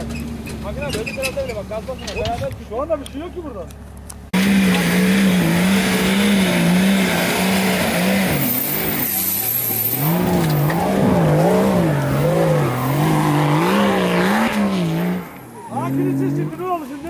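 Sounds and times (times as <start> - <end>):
off-road engine revving hard: 4.4 - 16.8.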